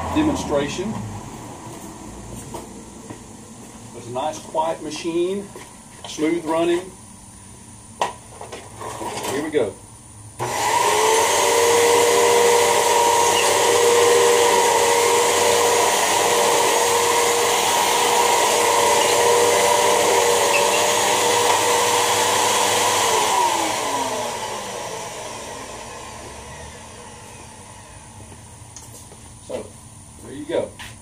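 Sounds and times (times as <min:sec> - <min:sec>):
vacuum cleaner whining: 0:10.4 - 0:28.7.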